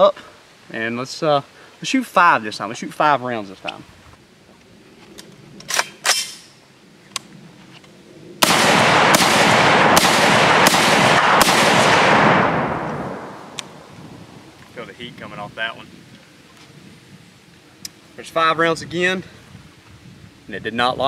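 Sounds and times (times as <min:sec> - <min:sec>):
rifle shots echoing: 0:08.4 - 0:14.0.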